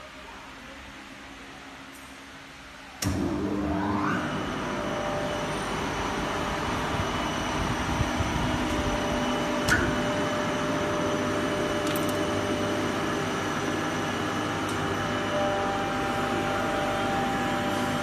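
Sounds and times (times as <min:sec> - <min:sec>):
air compressor humming and whining: 0:00.0 - 0:18.0.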